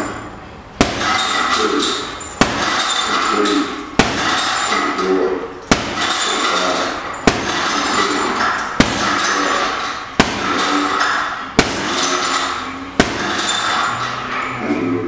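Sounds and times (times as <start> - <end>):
boxing gloves punching heavy bag: 0.8 - 3.4, 4.0 - 4.8, 5.7 - 6.6, 7.2 - 13.9.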